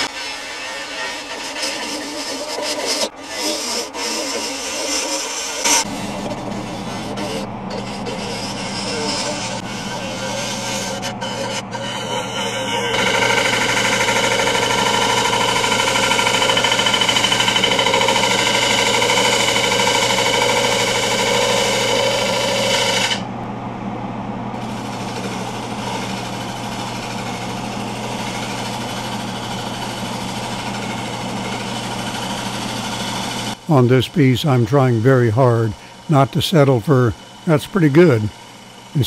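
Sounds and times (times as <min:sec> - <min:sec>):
lathe humming: 0:00.0 - 0:23.3, 0:24.6 - 0:39.0
lathe tool cutting wood: 0:00.0 - 0:23.3, 0:24.6 - 0:39.0.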